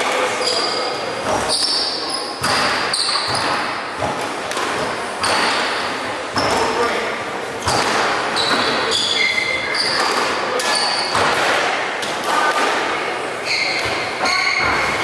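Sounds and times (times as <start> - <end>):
shoe squeaks on wooden floor: 0.4 - 3.7, 8.4 - 10.1, 13.4 - 15.0
squash ball smacking: 2.4 - 6.9, 7.6 - 8.9, 9.8 - 13.0.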